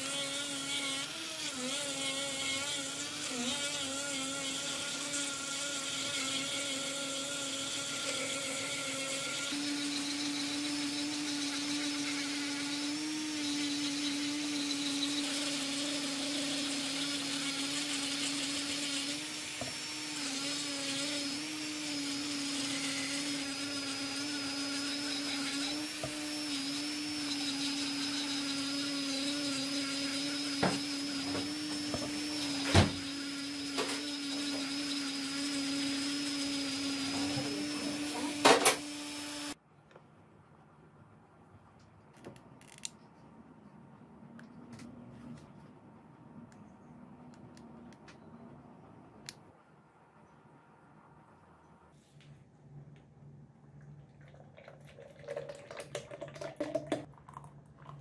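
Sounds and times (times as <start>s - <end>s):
power tool motor humming: 0.0s - 39.6s.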